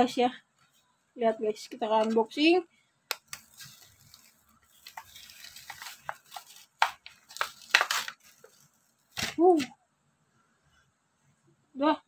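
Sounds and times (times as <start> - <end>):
plastic crinkling: 3.1 - 9.6
plastic cracking: 3.1 - 9.7
card tearing: 3.2 - 9.4.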